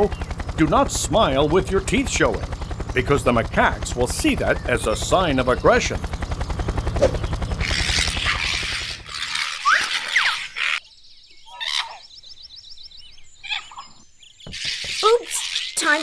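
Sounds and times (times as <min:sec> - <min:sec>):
rapid high ticking: 0:00.0 - 0:09.5
low rattling pulse: 0:00.0 - 0:09.6.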